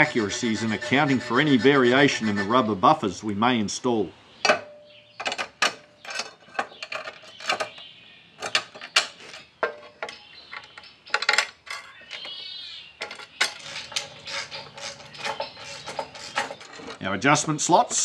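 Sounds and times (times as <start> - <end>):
metal scrape: 0.0 - 2.9, 13.0 - 17.0
metal bolts clinking on sheet metal: 4.4 - 7.8, 8.4 - 12.4, 13.0 - 17.0.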